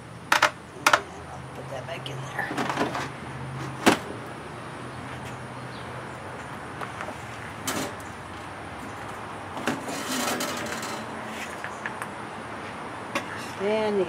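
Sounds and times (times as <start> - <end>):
metal rattling clatter: 9.6 - 11.1.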